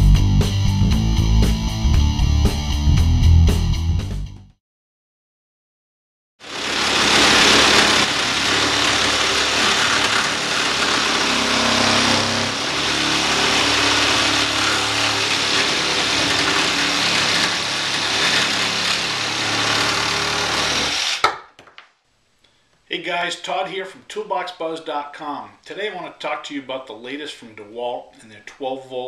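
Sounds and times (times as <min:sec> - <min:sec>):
reciprocating saw cutting wood: 0:06.4 - 0:21.3.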